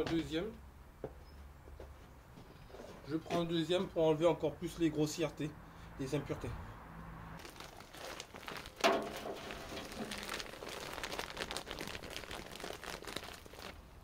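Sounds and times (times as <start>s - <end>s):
compost pouring onto sieve: 7.4s - 13.8s
plastic bag crinkling: 7.4s - 14.0s.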